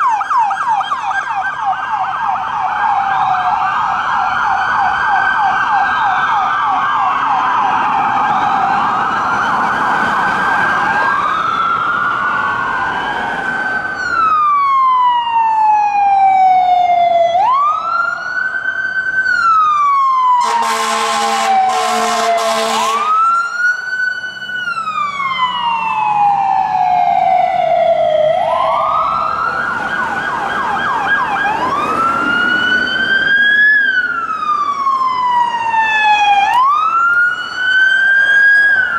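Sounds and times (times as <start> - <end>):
siren wail: 0.0 - 38.9
siren yelp: 0.0 - 38.9
vehicle horn blasts: 20.4 - 23.2.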